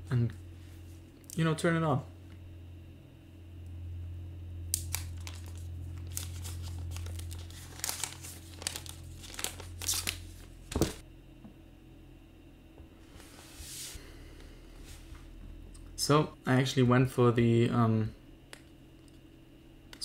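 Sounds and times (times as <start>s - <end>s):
plastic wrap crinkling: 4.8s - 11.0s.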